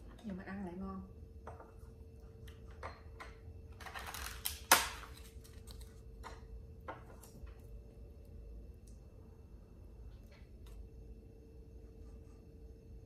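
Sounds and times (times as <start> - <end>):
rice cracker crackling and snapping: 3.9 - 6.0.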